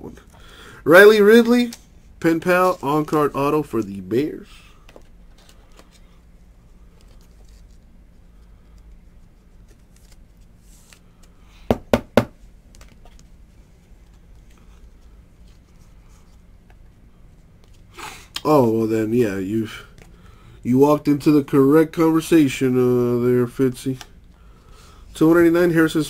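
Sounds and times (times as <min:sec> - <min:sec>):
cards sliding and rustling: 0:06.8 - 0:11.5.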